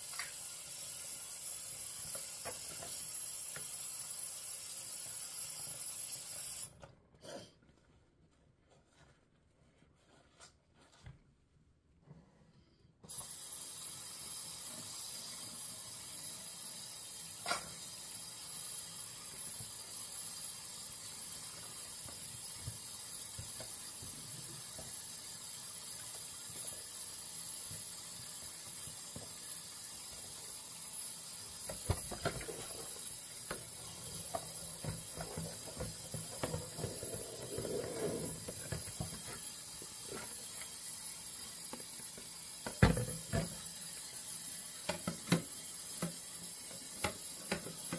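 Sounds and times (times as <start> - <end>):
dishes washed in soapy water: 13.1 - 47.9.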